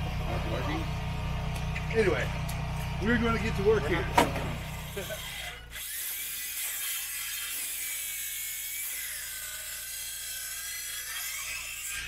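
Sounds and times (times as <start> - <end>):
faint motor whine: 0.0 - 12.0
cordless drill driving a screw: 4.7 - 12.0.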